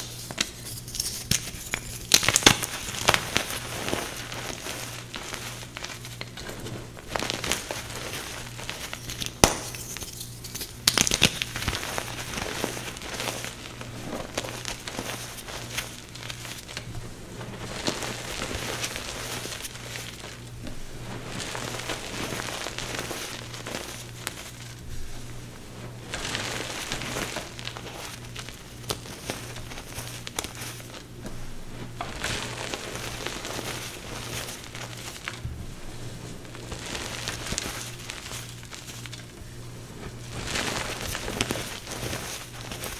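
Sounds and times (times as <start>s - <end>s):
sharp chalk cracks: 0.0s - 4.6s, 8.6s - 13.5s
chalk crushing and crumbling: 0.0s - 39.4s, 40.0s - 42.9s.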